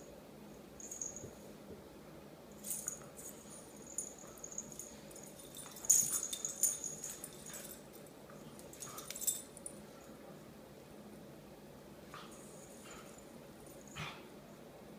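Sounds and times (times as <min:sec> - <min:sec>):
small metal jingling: 0:00.8 - 0:01.3, 0:02.6 - 0:09.8.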